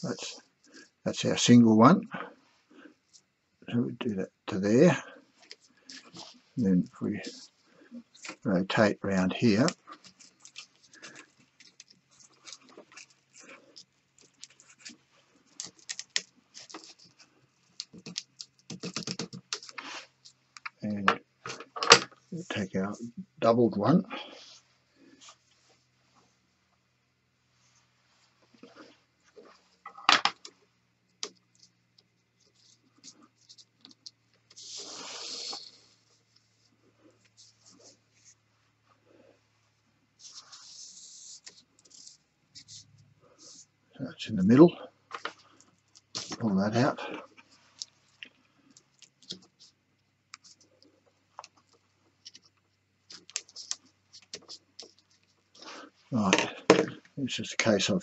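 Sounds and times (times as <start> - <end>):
fid working in rope: 5.0 - 20.8
rope clicks and rustles: 9.5 - 22.4, 28.4 - 36.5, 45.1 - 57.2.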